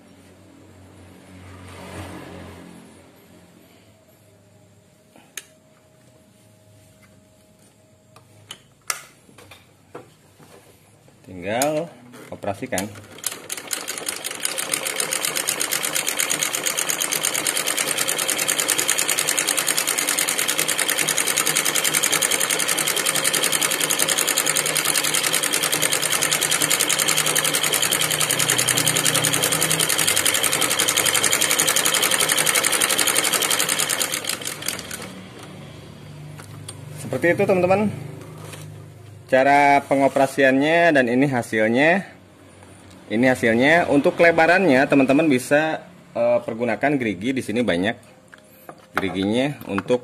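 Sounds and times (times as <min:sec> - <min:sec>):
sewing machine stitching: 0:12.6 - 0:35.2.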